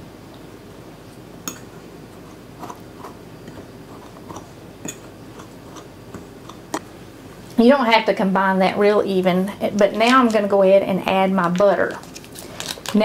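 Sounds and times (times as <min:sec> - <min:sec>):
low steady hum: 0:00.0 - 0:13.0
fork scraping ceramic plate: 0:01.5 - 0:06.9.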